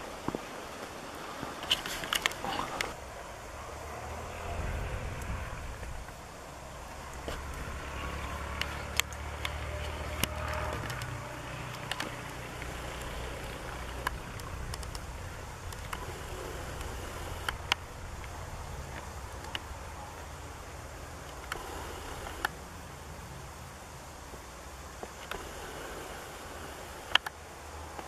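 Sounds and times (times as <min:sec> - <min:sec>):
wind buffeting microphone: 0:00.0 - 0:22.6
sharp clicks: 0:08.5 - 0:19.8, 0:21.2 - 0:22.6, 0:25.0 - 0:25.7, 0:27.0 - 0:28.0.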